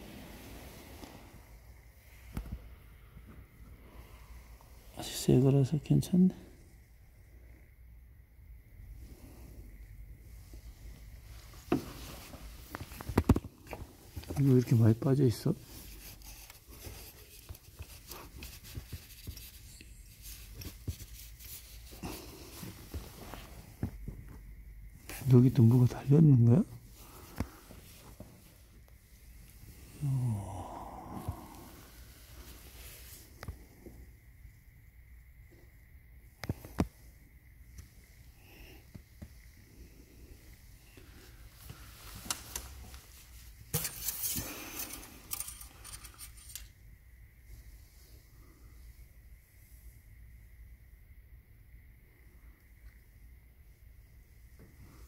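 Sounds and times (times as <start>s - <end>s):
light clicks and clinking rattles: 43.8s - 46.8s.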